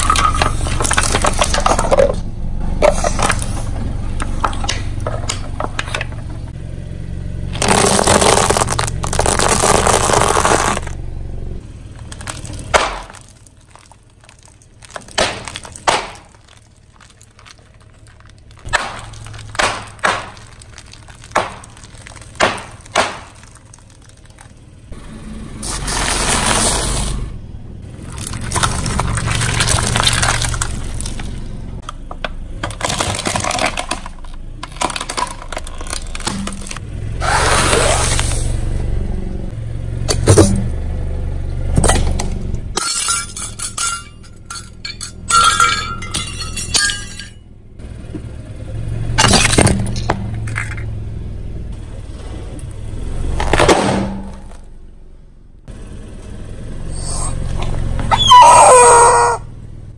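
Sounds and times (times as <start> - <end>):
plastic crunching: 0.0 - 2.2, 7.6 - 11.0, 11.9 - 24.7, 28.0 - 38.2
tyre rumble on concrete: 7.5 - 11.0, 11.8 - 24.9
wet squashing of jelly: 28.2 - 31.4.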